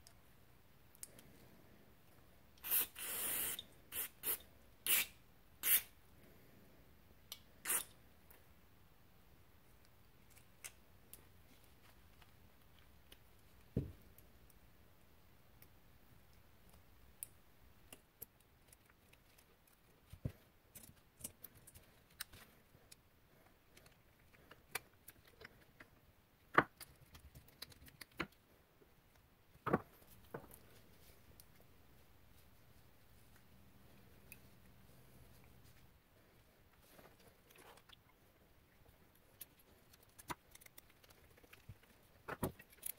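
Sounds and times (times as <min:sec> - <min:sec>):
small parts clicking and tapping: 0:15.5 - 0:28.4, 0:39.2 - 0:42.9.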